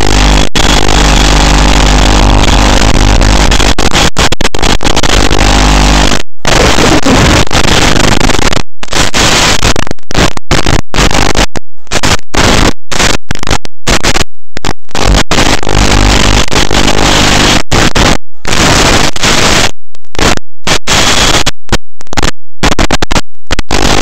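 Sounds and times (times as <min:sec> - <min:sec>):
loud static hiss: 0:00.0 - 0:24.0.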